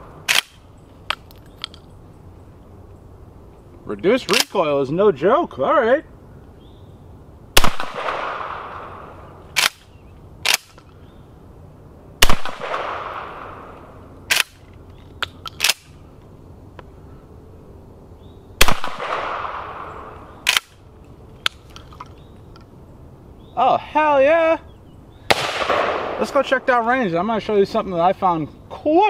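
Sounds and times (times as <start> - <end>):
shotgun shots: 7.6 - 9.0, 12.2 - 13.7, 18.6 - 20.7, 25.3 - 26.5.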